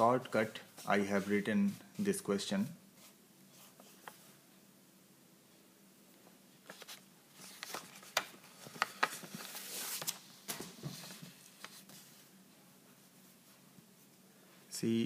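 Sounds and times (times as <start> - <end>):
paper rustling: 6.6 - 12.3.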